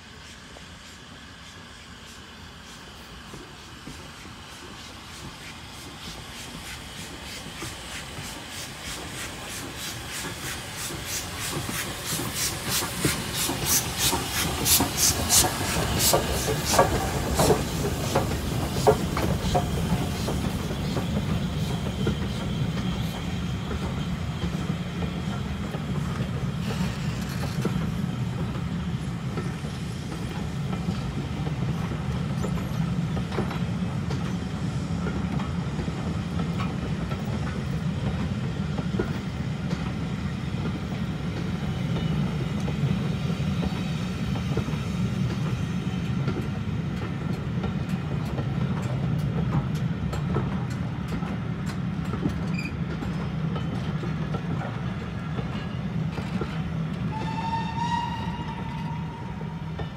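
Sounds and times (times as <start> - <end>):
train wheels rumbling: 0.0 - 59.9
wheels clicking over rail joints: 46.2 - 57.7.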